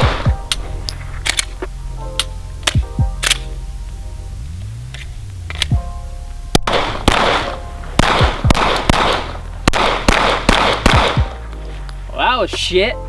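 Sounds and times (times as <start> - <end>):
pistol shots with echo: 6.6 - 11.4.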